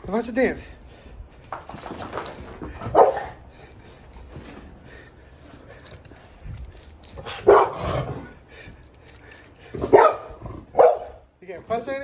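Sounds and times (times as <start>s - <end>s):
dog barking: 2.9s - 3.4s, 7.4s - 7.9s, 9.8s - 11.2s.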